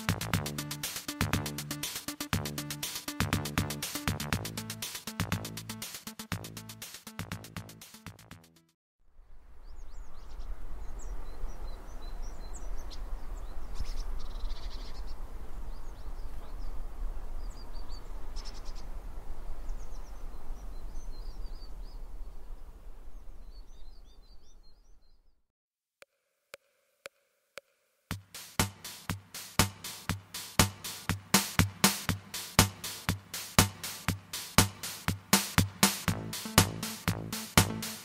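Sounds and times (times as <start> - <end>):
wind rumbling on microphone: 9.2 - 24.6
small birds chirping: 9.6 - 19.0, 19.6 - 25.4.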